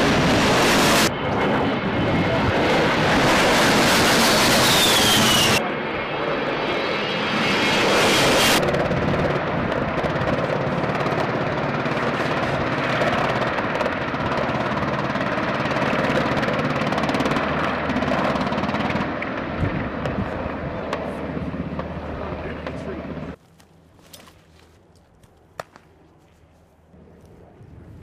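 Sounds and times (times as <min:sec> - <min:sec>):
jet engine hiss: 0:00.0 - 0:05.7, 0:06.9 - 0:08.6
helicopter hovering: 0:00.0 - 0:23.4.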